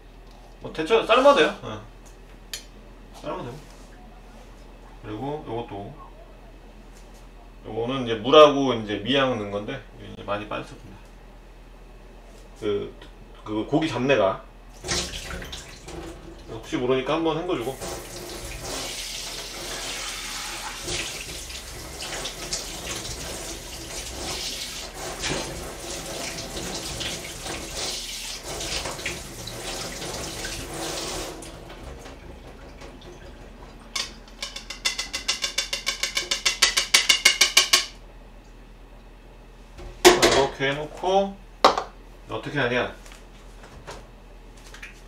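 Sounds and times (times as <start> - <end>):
tap running into sink: 17.8 - 33.3
fast rattling knocks: 34.0 - 38.0.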